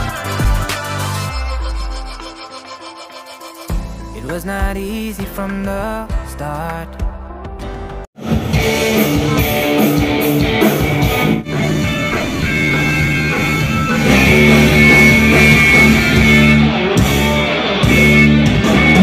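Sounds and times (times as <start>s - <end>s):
rock band with electric guitars: 7.6s - 19.0s.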